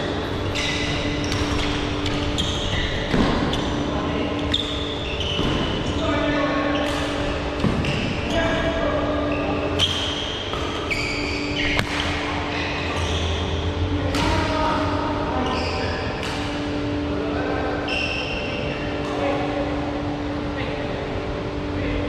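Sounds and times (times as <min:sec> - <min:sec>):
shoes squeaking on court floor: 0:00.0 - 0:14.4, 0:15.4 - 0:16.8
low hum in hall: 0:00.0 - 0:22.0
racket hitting shuttlecock: 0:00.6 - 0:03.7, 0:06.8 - 0:08.4, 0:09.8 - 0:13.1, 0:14.1 - 0:14.5, 0:16.2 - 0:16.7.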